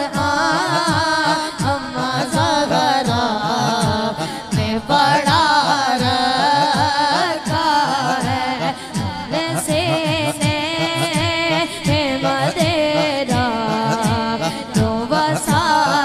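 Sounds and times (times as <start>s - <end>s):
steady low drum beat: 0.0s - 15.9s
boy singing into a microphone: 0.0s - 16.0s.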